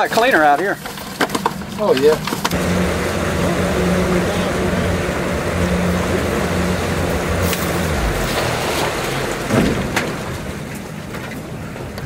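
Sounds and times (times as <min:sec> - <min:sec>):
boat motor humming: 0:00.0 - 0:12.0
wind and water hiss: 0:02.6 - 0:11.7.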